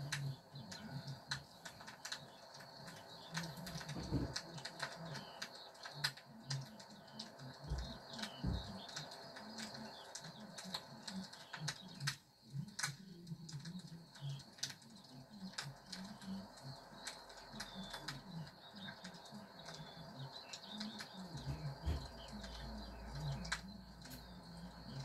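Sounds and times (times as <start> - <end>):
sharp clicks: 0.0 - 25.0
bird cooing: 15.1 - 25.0.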